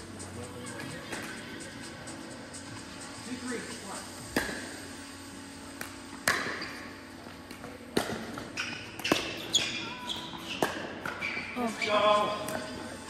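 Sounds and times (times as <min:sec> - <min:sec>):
sneaker squeaks on court: 0:06.3 - 0:07.1, 0:08.1 - 0:12.0.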